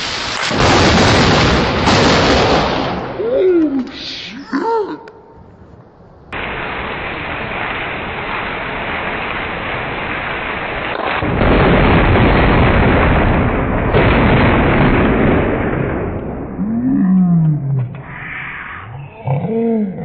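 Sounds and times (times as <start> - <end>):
slowed thunder blast and rumble: 0.5 - 3.2, 6.3 - 18.8
heavy rain hiss: 6.4 - 9.4
deep drawn-out falling cry: 16.6 - 20.0.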